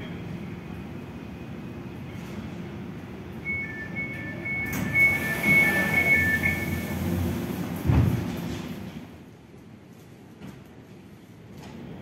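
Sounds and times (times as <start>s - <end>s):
two-note warning beep: 3.5s - 6.8s.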